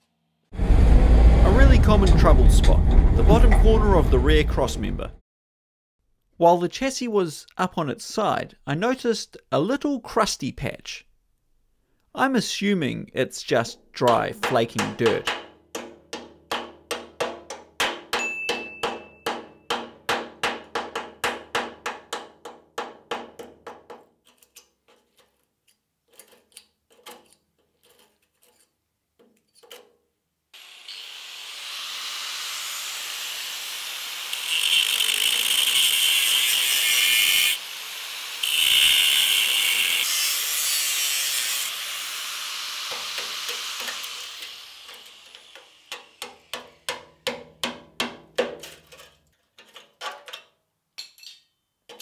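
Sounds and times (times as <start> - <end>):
power tool grinding steel: 30.6 - 47.0.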